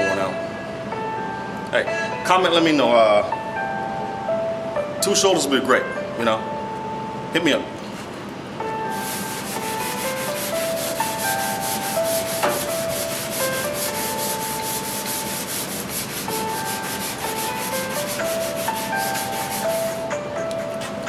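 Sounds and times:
sandpaper rubbing on metal: 8.9 - 20.0.

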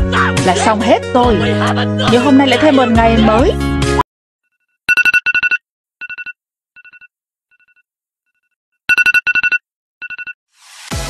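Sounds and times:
electronic alarm beeping: 4.9 - 7.7, 8.9 - 10.4.

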